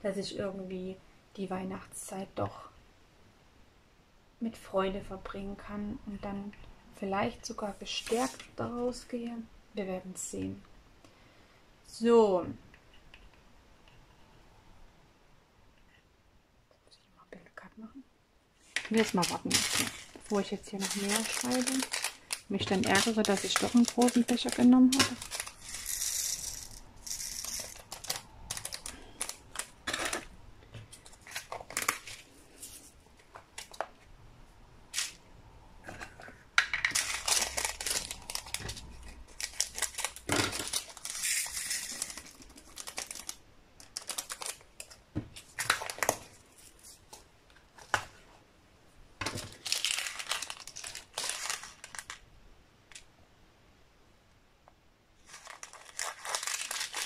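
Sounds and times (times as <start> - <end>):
plastic bags crinkling: 7.9 - 8.6, 18.6 - 33.9, 35.9 - 47.2, 49.2 - 52.3, 55.2 - 57.0.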